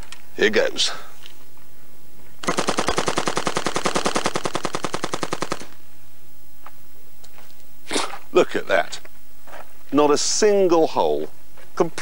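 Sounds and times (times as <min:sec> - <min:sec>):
automatic rifle burst: 0:02.4 - 0:05.8.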